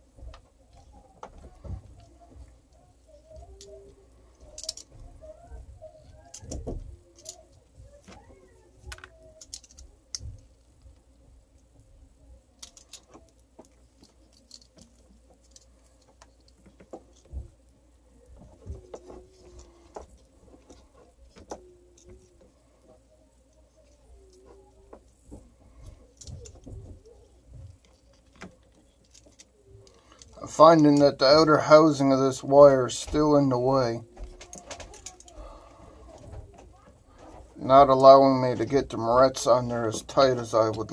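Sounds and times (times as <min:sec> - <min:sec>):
plastic wire nuts twisting: 0:03.4 - 0:05.0, 0:06.1 - 0:08.2, 0:08.8 - 0:10.7, 0:12.6 - 0:17.3, 0:25.8 - 0:31.1, 0:34.2 - 0:35.4.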